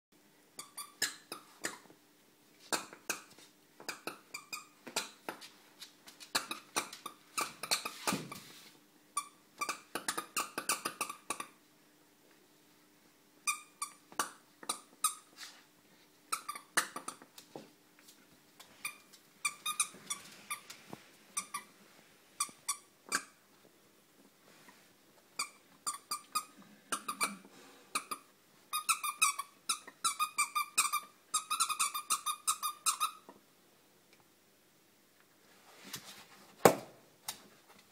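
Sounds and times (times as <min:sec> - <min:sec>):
squeaky toy squeaking: 0:00.6 - 0:01.9, 0:03.9 - 0:05.1, 0:06.3 - 0:08.4, 0:13.4 - 0:15.3, 0:16.3 - 0:17.2, 0:18.8 - 0:20.6, 0:21.4 - 0:21.7, 0:22.4 - 0:23.4, 0:25.4 - 0:27.4, 0:28.0 - 0:33.3.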